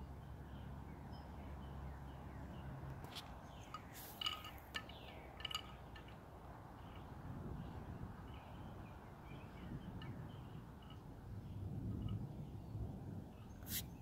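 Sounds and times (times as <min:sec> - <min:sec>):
wind through leafy trees: 0:00.0 - 0:14.0
bright ringing clinks: 0:03.6 - 0:06.2.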